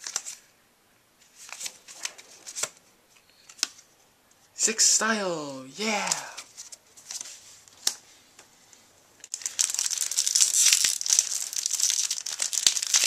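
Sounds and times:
foil wrapper crinkling and tearing: 0:09.2 - 0:13.0.

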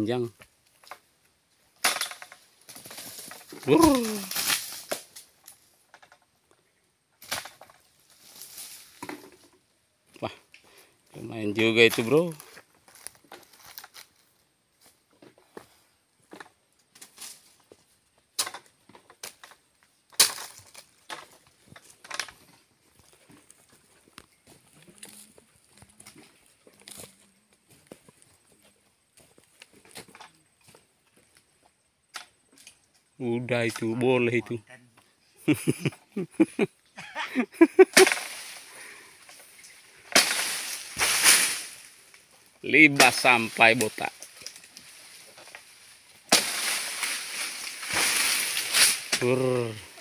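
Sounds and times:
palm fronds crashing down: 0:01.8 - 0:05.3, 0:07.2 - 0:09.3, 0:37.9 - 0:50.0.

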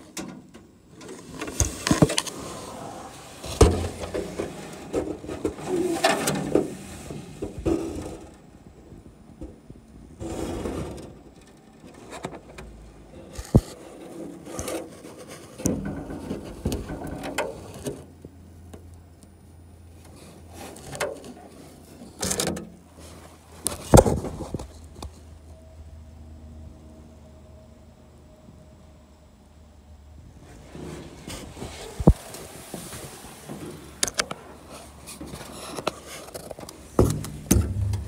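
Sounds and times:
low steady hum: 0:00.0 - 0:38.0
camera knocking inside metal wing: 0:37.0 - 0:38.0.

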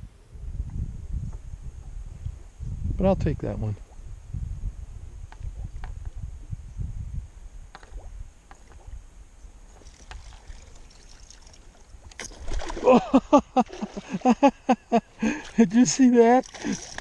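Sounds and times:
fish striking with splash: 0:12.1 - 0:12.9.

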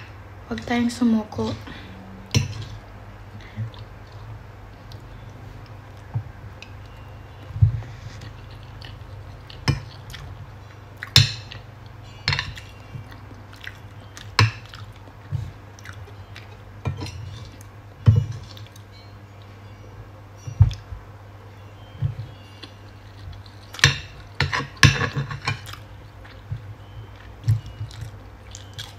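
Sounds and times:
low hum: 0:00.0 - 0:28.9
chewing: 0:03.4 - 0:17.8, 0:18.4 - 0:19.5, 0:22.3 - 0:28.9.

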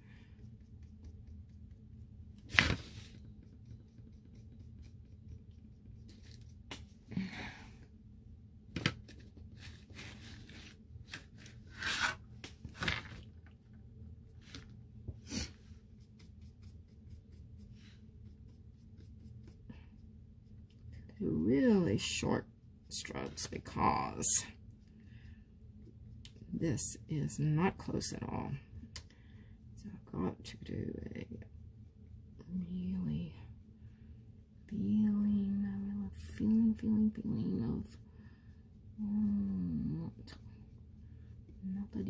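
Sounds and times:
faint low hum: 0:00.0 - 0:42.0
paper sheet rustling: 0:02.5 - 0:03.2.

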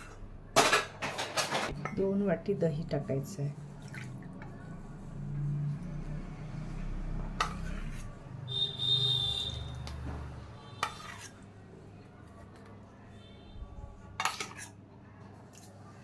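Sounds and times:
steel bowl clinking and scraping: 0:10.8 - 0:11.4.

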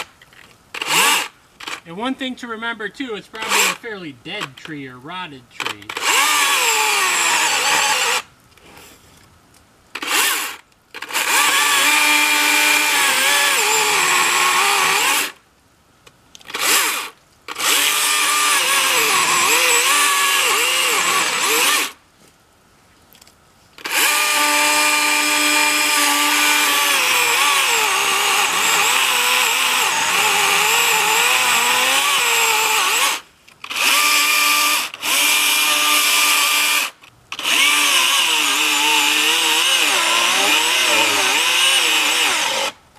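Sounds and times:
chainsaw cutting tree trunk: 0:00.8 - 0:01.9, 0:03.4 - 0:03.8, 0:05.6 - 0:08.3, 0:10.0 - 0:15.4, 0:16.5 - 0:22.0, 0:23.8 - 0:42.8.

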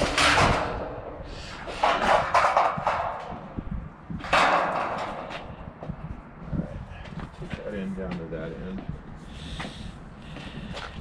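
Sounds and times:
metal roofing panels rustling: 0:00.0 - 0:06.2.

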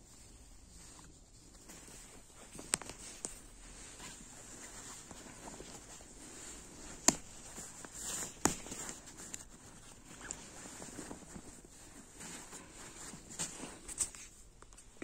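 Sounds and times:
fabric rustling: 0:00.0 - 0:15.0.

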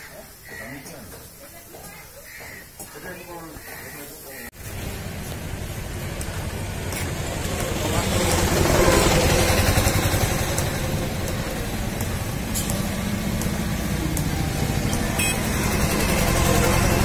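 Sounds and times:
motor engine running: 0:04.6 - 0:17.0.

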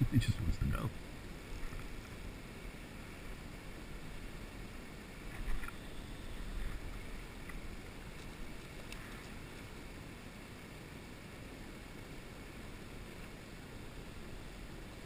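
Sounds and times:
wind rumble on microphone: 0:00.0 - 0:10.0
river flowing: 0:00.0 - 0:15.0
faint clicks: 0:05.3 - 0:05.8, 0:06.6 - 0:09.7.

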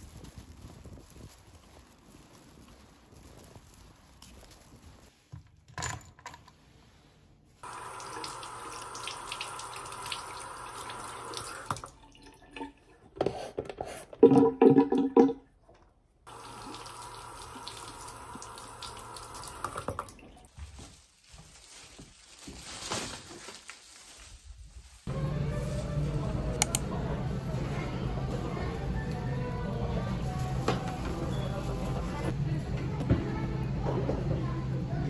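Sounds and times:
faucet water over hands: 0:07.6 - 0:12.8, 0:16.3 - 0:20.4.

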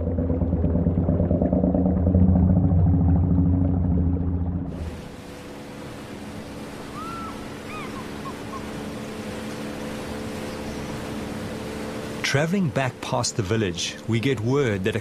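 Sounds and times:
outboard engine drone: 0:00.0 - 0:15.0
hiss of water and wind: 0:04.6 - 0:15.0.

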